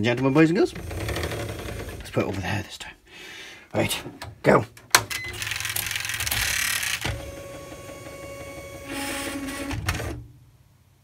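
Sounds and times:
typewriter carriage motor whirring: 0:00.7 - 0:02.4, 0:05.2 - 0:10.2.

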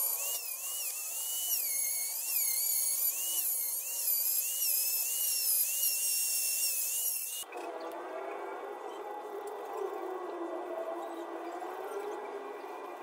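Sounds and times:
rotary tool sanding wood: 0:00.0 - 0:07.5.

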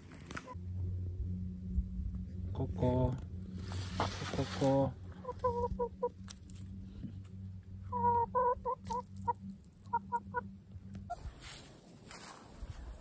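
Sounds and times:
hen clucking: 0:03.9 - 0:06.4, 0:07.9 - 0:11.3.

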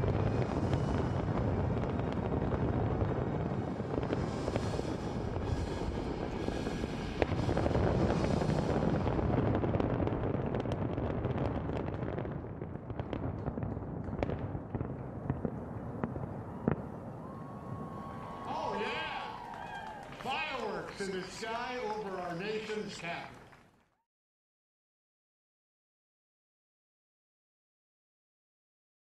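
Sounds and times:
fireworks bursting and crackling: 0:00.0 - 0:23.8.

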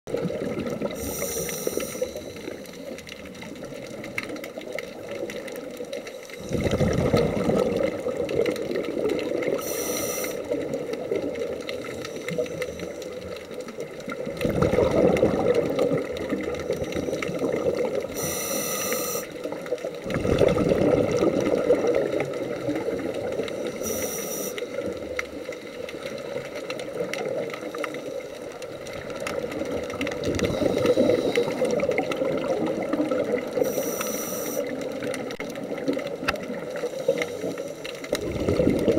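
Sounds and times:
exhaled bubbles underwater: 0:00.1 - 0:38.9
regulator inhalation hiss: 0:01.0 - 0:03.0, 0:09.6 - 0:10.6, 0:18.1 - 0:19.5, 0:23.5 - 0:25.0, 0:30.4 - 0:31.9, 0:33.6 - 0:34.8.

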